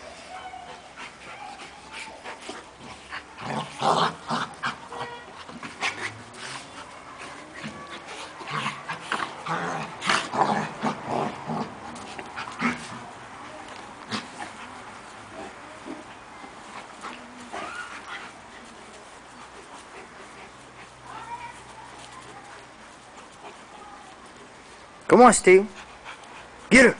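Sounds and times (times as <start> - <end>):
dog whining: 0.0 - 2.2
dogs fighting: 0.0 - 25.0, 25.7 - 26.7
dog yips and whimpers: 0.1 - 2.2, 17.5 - 18.1.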